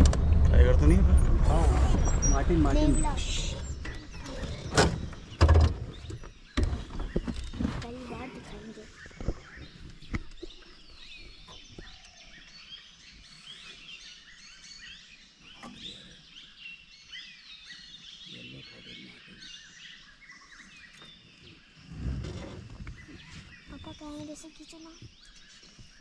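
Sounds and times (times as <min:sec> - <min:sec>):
forest birds chirping: 0:00.2 - 0:26.0.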